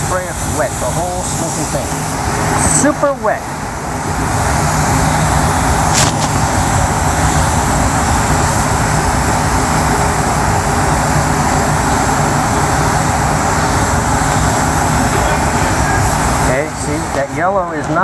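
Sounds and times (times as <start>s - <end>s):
short sharp hiss: 5.9s - 6.7s.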